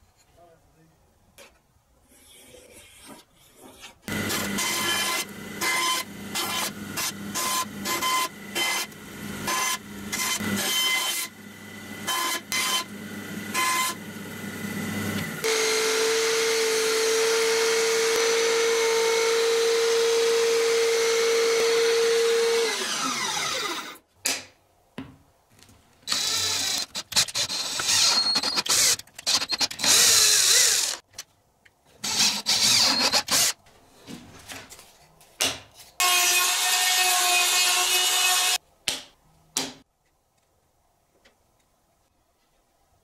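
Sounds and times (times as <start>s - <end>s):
electric belt sander running: 4.1s - 24.0s
electric drill boring into wood: 4.1s - 24.0s, 26.1s - 31.0s, 32.0s - 33.5s, 36.0s - 38.6s.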